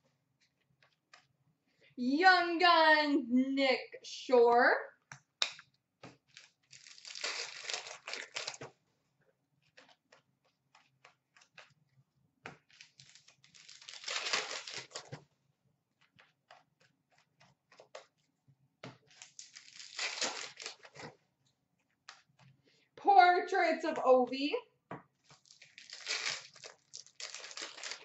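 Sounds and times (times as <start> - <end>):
cards rustling: 6.0 - 8.7, 12.6 - 15.2, 19.1 - 21.2, 25.2 - 28.0
wrapper crinkling and tearing: 6.3 - 8.7, 12.7 - 15.2, 19.1 - 21.1, 25.2 - 28.0.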